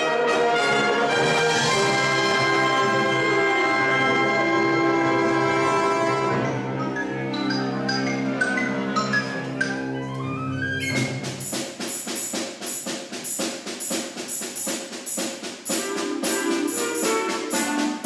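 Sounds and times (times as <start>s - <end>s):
wind band playing: 0.0s - 6.7s, 15.7s - 18.0s
short percussion strokes: 10.9s - 18.0s.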